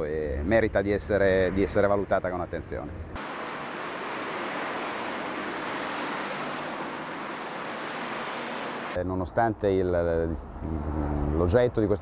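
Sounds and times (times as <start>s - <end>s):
steady rushing noise: 3.1s - 9.0s.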